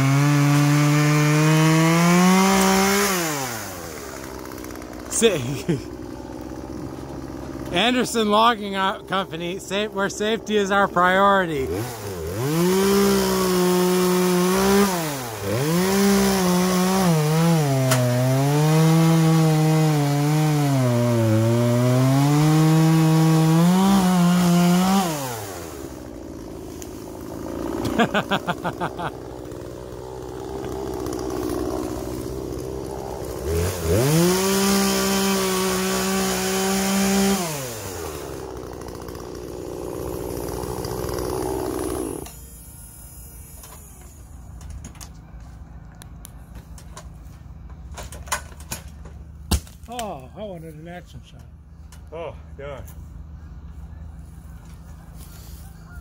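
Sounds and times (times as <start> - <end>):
chainsaw cutting: 0.0 - 44.6.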